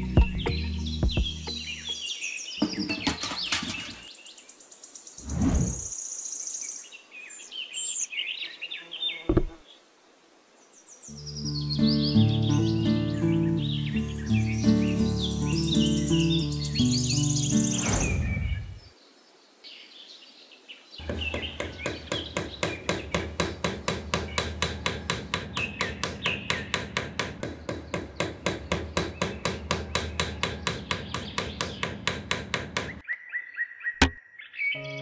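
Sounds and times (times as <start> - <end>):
birds chirping: 0.0 - 9.9, 10.6 - 35.0
rapid even knocking: 21.0 - 33.0.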